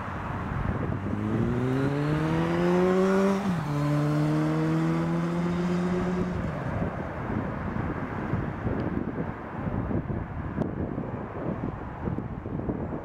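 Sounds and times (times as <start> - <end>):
traffic noise: 0.0 - 13.0
motorcycle accelerating past: 0.8 - 6.8.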